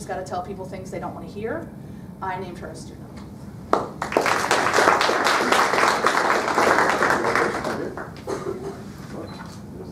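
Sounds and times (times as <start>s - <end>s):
people applauding: 3.7s - 8.3s.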